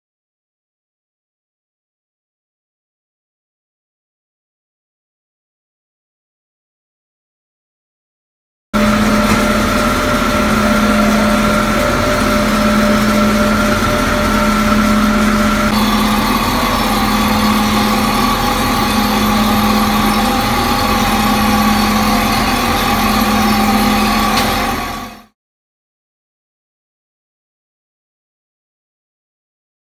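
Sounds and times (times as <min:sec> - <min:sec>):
wheel lathe machine hum: 0:08.8 - 0:25.3.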